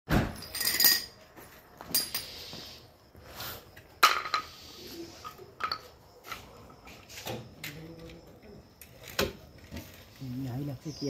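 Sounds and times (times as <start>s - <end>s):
metal tools clinking: 0.3s - 2.4s, 5.2s - 6.5s.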